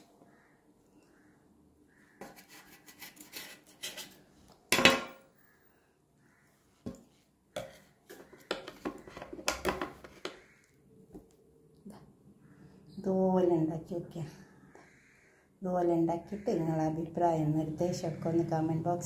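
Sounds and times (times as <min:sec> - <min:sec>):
spatula scraping a plate: 0:02.2 - 0:04.2.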